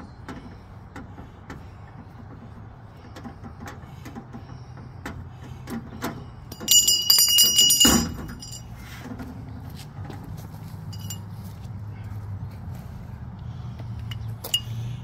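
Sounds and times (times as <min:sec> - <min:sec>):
copper pipe clattering: 0:00.0 - 0:09.4, 0:10.9 - 0:11.2.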